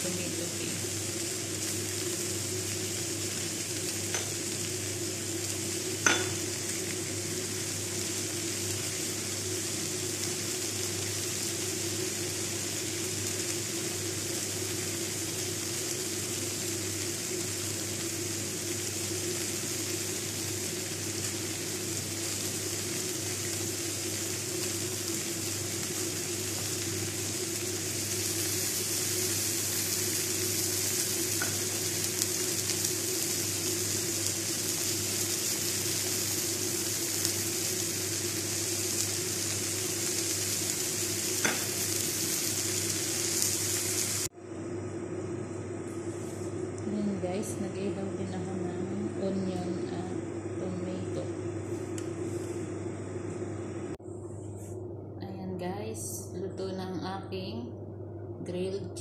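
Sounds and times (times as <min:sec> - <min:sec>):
chicken sizzling on a tray: 0:00.0 - 0:44.3.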